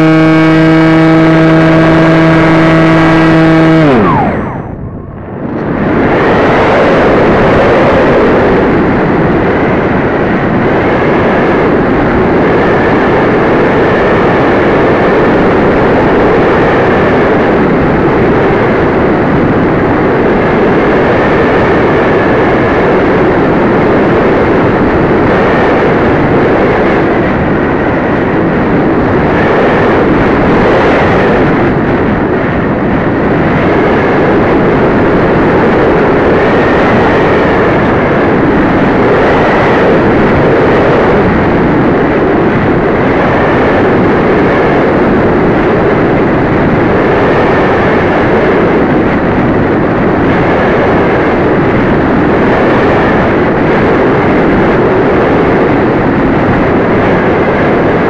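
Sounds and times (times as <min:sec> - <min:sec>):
faint high whine: 0:00.0 - 0:18.7
motor and propeller noise: 0:00.0 - 0:58.0
wind rushing over microphone: 0:00.0 - 0:58.0.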